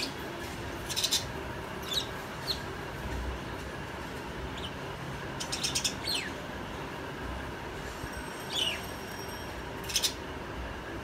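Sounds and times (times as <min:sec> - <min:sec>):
steady background noise: 0:00.0 - 0:11.0
parrots chirping: 0:00.8 - 0:02.8, 0:04.5 - 0:06.5, 0:08.4 - 0:10.3.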